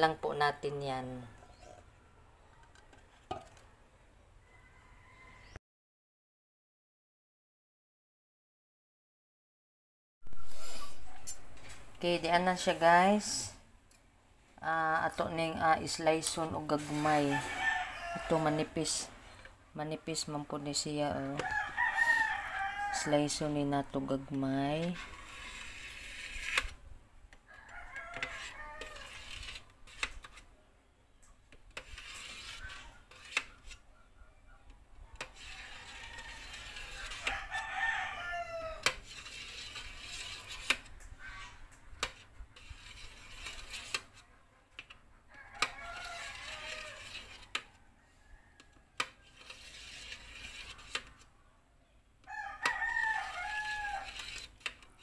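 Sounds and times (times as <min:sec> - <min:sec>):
rooster crowing: 0:04.4 - 0:05.6, 0:17.2 - 0:18.6, 0:21.4 - 0:23.3, 0:27.5 - 0:29.2, 0:35.5 - 0:38.9, 0:45.3 - 0:47.1, 0:52.2 - 0:54.2.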